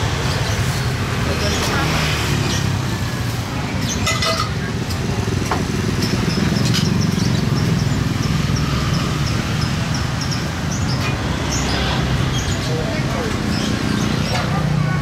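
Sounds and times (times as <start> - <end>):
motor scooter engine running: 4.7 - 12.2.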